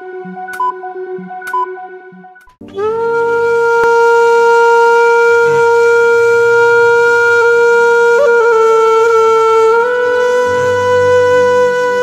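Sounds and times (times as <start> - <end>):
long held wind instrument note: 2.6 - 12.0.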